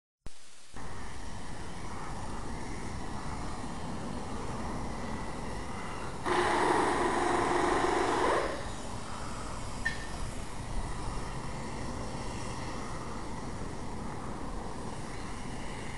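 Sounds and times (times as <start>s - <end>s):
steam cleaner hissing: 6.2s - 9.7s.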